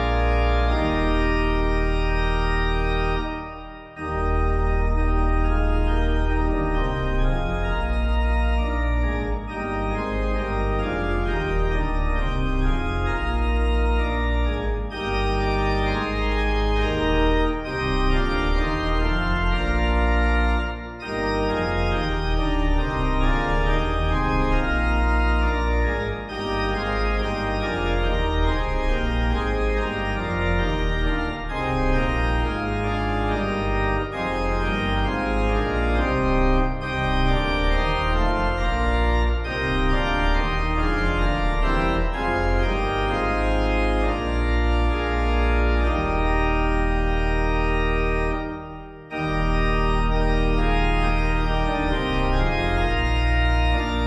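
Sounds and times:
organ playing slow chords: 0:00.0 - 0:54.0.

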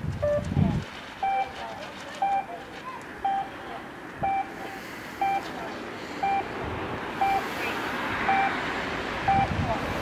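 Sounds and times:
short electronic beeps: 0:00.2 - 0:00.4, 0:01.2 - 0:01.6, 0:02.2 - 0:02.6, 0:03.2 - 0:05.5, 0:06.2 - 0:06.5, 0:07.2 - 0:07.4, 0:08.3 - 0:08.6, 0:09.3 - 0:09.6.

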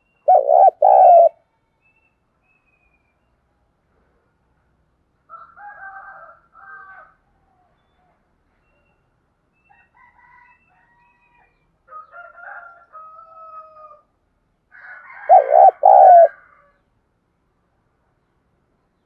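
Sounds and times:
dove cooing: 0:00.3 - 0:01.4, 0:15.3 - 0:16.4.

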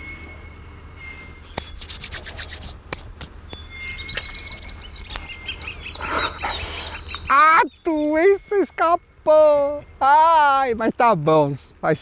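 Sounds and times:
small birds chirping: 0:00.0 - 0:12.0
scraping rustling noises: 0:01.5 - 0:03.4.

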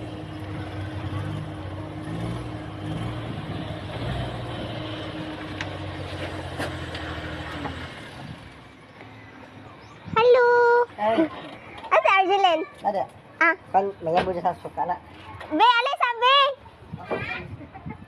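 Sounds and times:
truck engine idling: 0:00.0 - 0:09.8.

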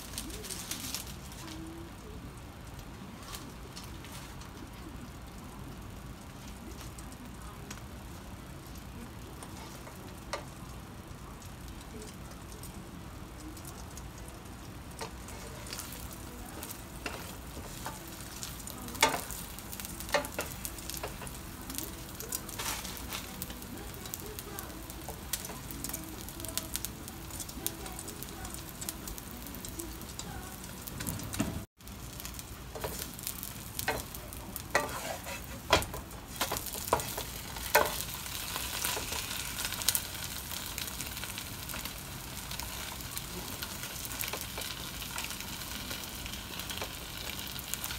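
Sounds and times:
egg sizzling in a pan: 0:03.4 - 0:47.9
spatula scraping and tapping pan: 0:33.8 - 0:38.1.

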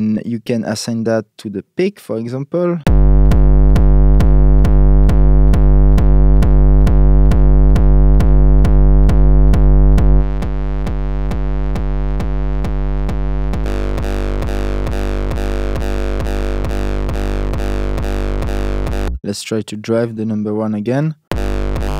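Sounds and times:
distorted looped kick drum: 0:02.9 - 0:19.2, 0:21.3 - 0:21.9.

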